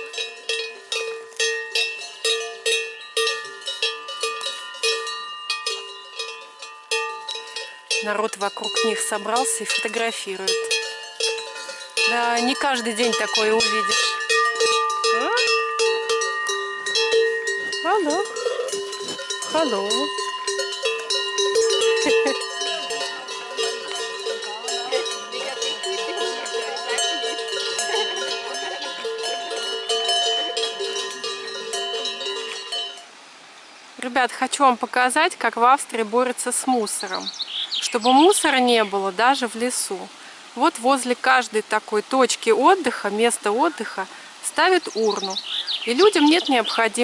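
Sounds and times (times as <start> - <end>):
cowbell clanking: 0.0 - 33.1.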